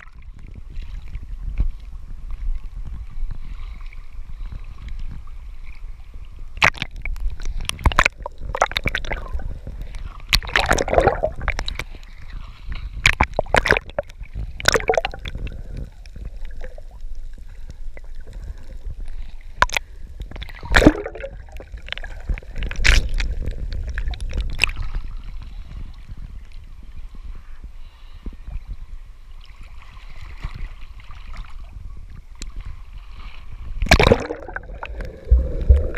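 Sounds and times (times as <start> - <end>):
water sloshing and gurgling: 0.0 - 27.5, 28.1 - 35.9
sharp water splashes: 6.6 - 7.1, 10.3 - 11.8, 13.0 - 15.3, 20.5 - 22.0, 33.8 - 35.9.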